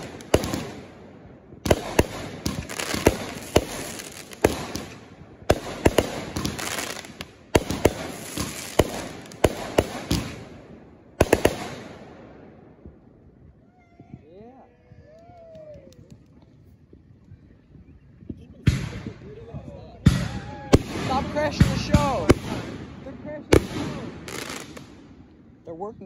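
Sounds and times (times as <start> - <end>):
fireworks bangs: 0.0 - 14.2, 18.2 - 25.4
fireworks crackling hiss: 1.7 - 10.4, 23.5 - 25.0.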